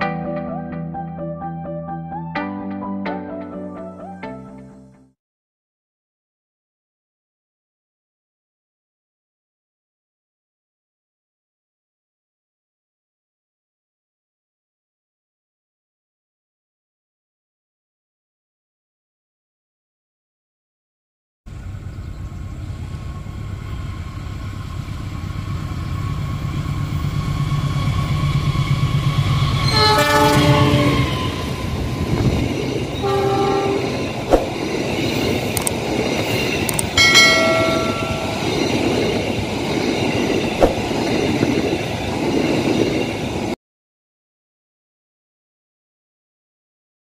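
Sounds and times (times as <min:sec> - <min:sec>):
diesel locomotive rumble: 0:21.5 - 0:43.4
train coaches rolling past: 0:21.5 - 0:43.6
train horn blasts: 0:29.6 - 0:31.4, 0:33.0 - 0:34.1
sharp wheel clicks: 0:35.5 - 0:35.8, 0:36.6 - 0:37.0.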